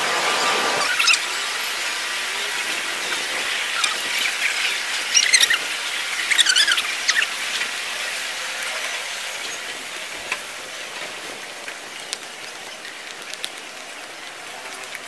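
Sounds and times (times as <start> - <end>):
faint clicks: 10.2 - 15.0.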